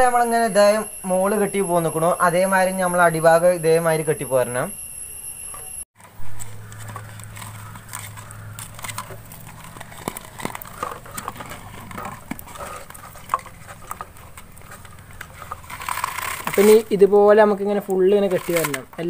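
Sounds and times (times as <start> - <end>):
plastic bottle clicks and crinkles: 6.4 - 16.9, 18.2 - 19.0.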